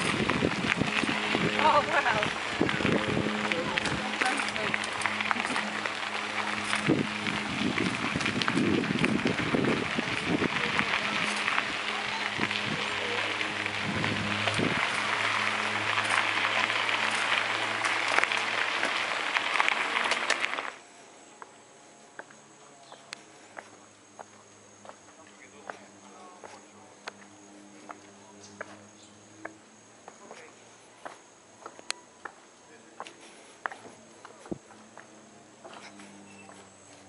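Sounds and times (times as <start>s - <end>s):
wind on microphone: 0.0s - 17.0s
bicycle tyres on gravel: 0.0s - 37.0s
high insect drone: 0.0s - 37.0s.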